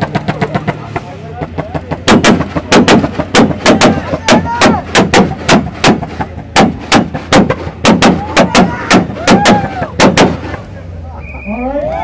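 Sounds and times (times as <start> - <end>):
exhaust popping and banging: 0.0 - 10.8
car engine revving: 0.0 - 12.0.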